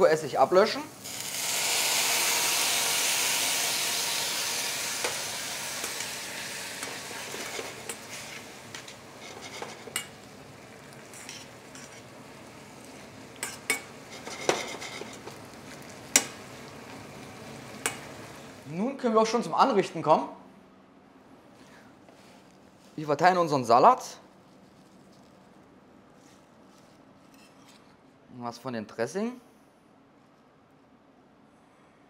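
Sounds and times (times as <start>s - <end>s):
vinegar sizzling in hot pan: 0.3s - 18.7s.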